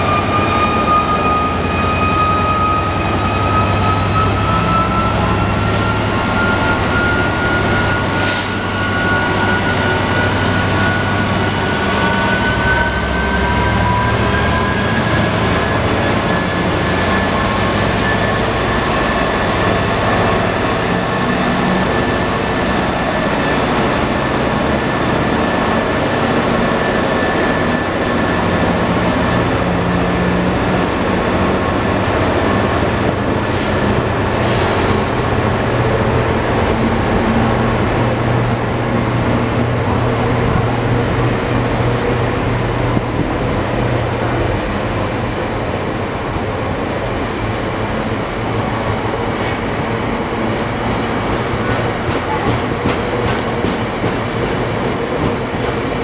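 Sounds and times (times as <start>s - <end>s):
diesel locomotive running past: 0.0s - 56.0s
train wheels rumbling on rail: 0.0s - 56.0s.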